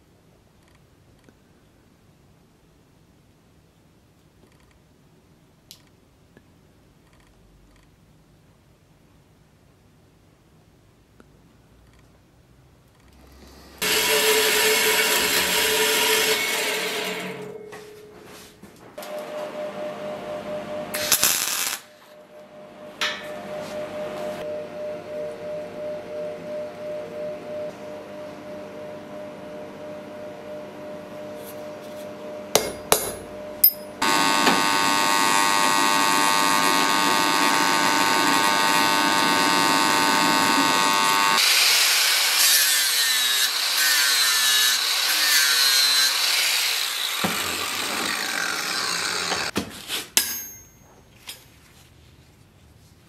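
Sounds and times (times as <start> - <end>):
electric power tool motor: 13.8 - 17.6, 34.0 - 49.5
harsh grinding on steel: 13.8 - 17.6, 34.0 - 49.5.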